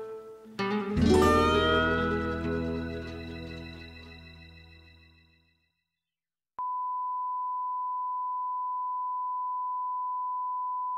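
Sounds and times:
music: 0:00.0 - 0:05.9.

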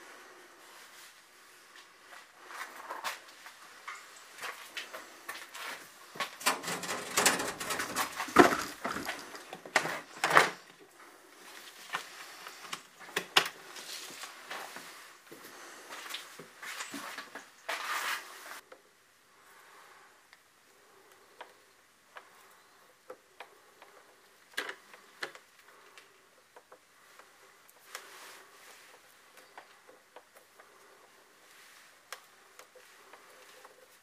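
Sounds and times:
hands handling cables rustling: 0:02.6 - 0:10.8.

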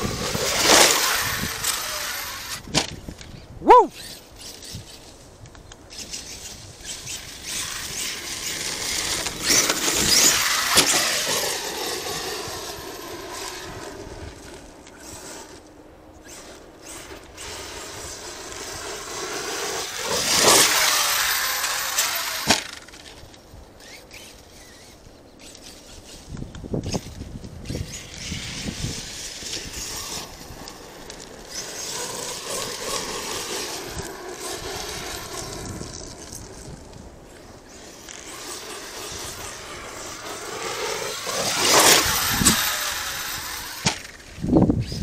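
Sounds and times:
electric motor whining: 0:00.0 - 0:05.2, 0:05.9 - 0:23.2, 0:23.8 - 0:45.0
tyres rushing on dirt: 0:07.1 - 0:15.6, 0:16.8 - 0:23.2, 0:27.8 - 0:44.4.

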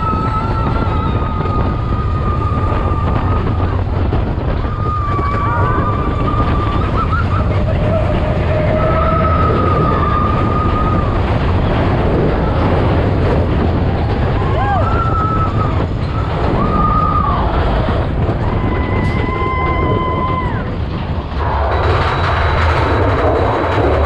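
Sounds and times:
roller coaster rumbling on track: 0:00.0 - 0:24.0.

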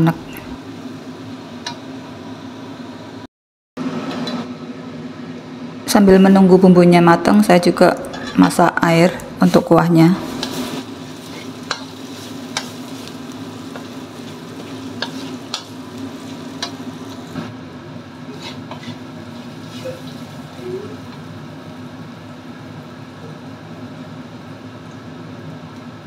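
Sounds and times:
metal spatula scraping a pan: 0:08.1 - 0:08.6, 0:10.3 - 0:16.8, 0:18.3 - 0:20.2
paste sizzling in oil: 0:10.2 - 0:17.5, 0:18.2 - 0:21.3.

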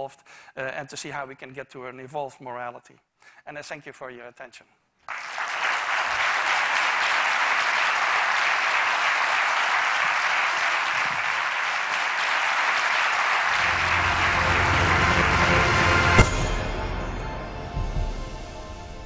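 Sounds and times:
audience applauding: 0:05.1 - 0:16.3
music with low notes: 0:13.5 - 0:19.0.

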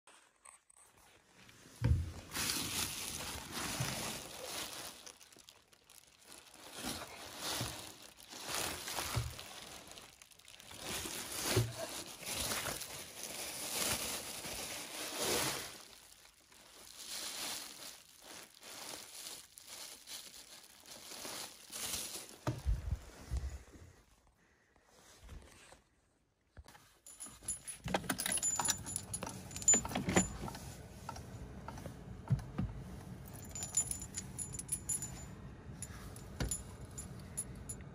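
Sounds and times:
bubble wrap crinkling: 0:02.2 - 0:22.9.

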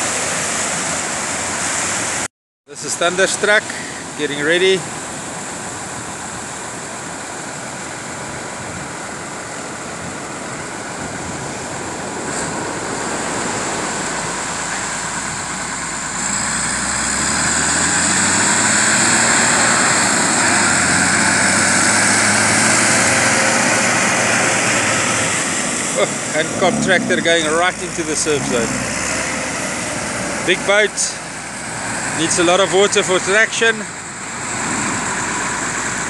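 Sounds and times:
surf: 0:00.0 - 0:36.0
wind: 0:00.0 - 0:36.0
tractor diesel engine revving: 0:11.0 - 0:36.0.

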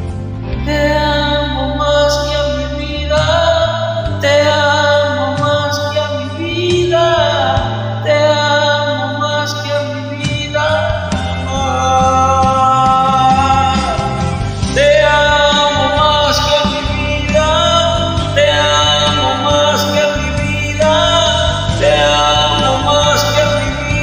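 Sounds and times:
worship song backing track: 0:00.0 - 0:24.0
person singing long notes: 0:00.7 - 0:24.0.

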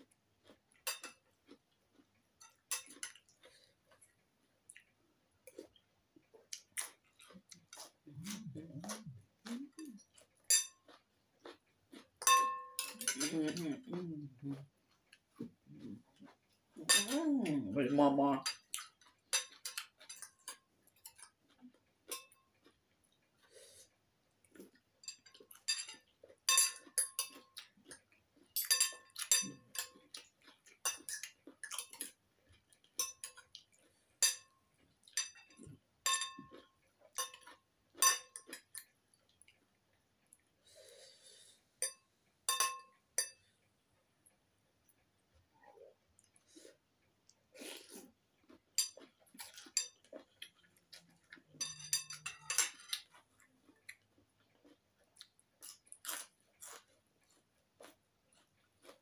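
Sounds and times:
cutlery clinking on ceramic bowl: 0:00.8 - 0:01.2, 0:02.4 - 0:03.4, 0:09.8 - 0:11.0, 0:12.2 - 0:13.6, 0:16.8 - 0:17.2, 0:18.4 - 0:21.4, 0:22.1 - 0:22.6, 0:25.0 - 0:27.8, 0:28.5 - 0:32.2, 0:32.8 - 0:33.6, 0:34.2 - 0:38.9, 0:41.8 - 0:43.4, 0:48.8 - 0:50.6, 0:51.2 - 0:53.1.

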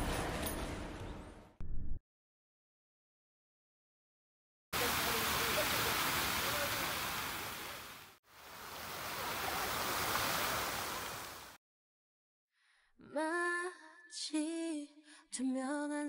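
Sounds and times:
fountain water splashing: 0:04.8 - 0:11.6
woman singing a song: 0:13.0 - 0:16.0.

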